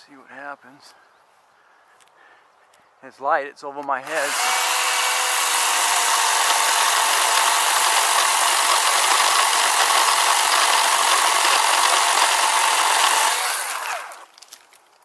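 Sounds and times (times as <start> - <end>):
electric chainsaw cutting wood: 4.0 - 14.4.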